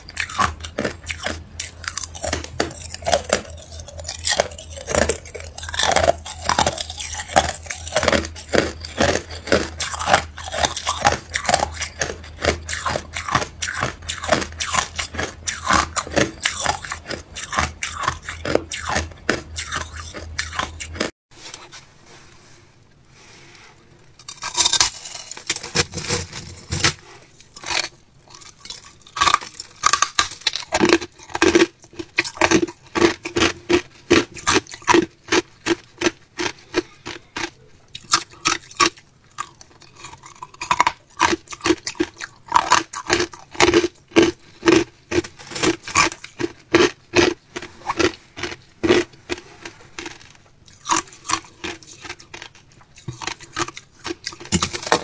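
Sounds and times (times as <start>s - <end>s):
chewing crushed ice: 0.0s - 21.1s, 24.1s - 55.0s.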